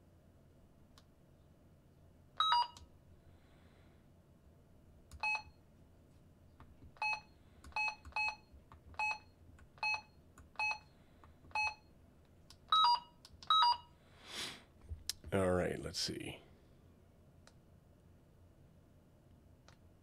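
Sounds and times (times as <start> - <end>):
short key-press beeps: 7.0 - 10.9, 12.7 - 13.8.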